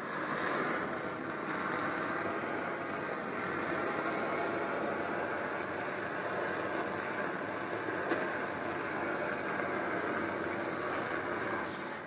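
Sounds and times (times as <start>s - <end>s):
propane torch hissing: 0.0s - 12.0s.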